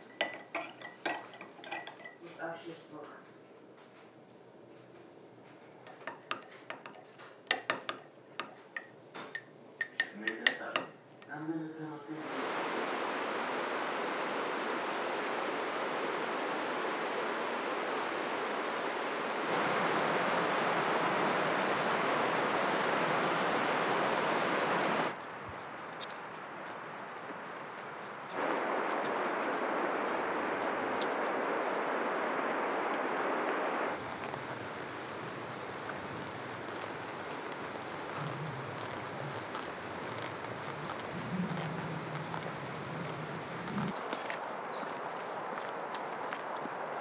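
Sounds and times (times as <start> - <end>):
insects chirping in grass: 11.3 - 47.0.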